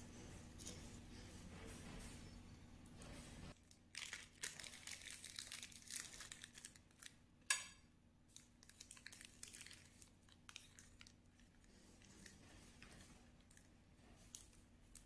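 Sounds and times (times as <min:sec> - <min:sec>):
faint crinkling of handling: 0:08.3 - 0:15.0.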